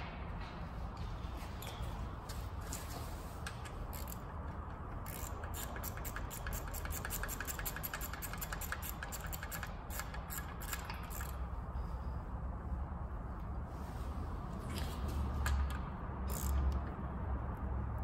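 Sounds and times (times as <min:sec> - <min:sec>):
socket ratchet clicking: 0:03.5 - 0:11.4, 0:15.4 - 0:17.0.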